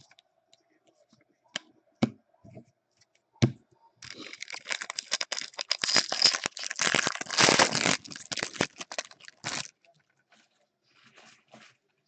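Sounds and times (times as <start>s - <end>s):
foil wrapper crinkling and tearing: 4.0s - 9.8s.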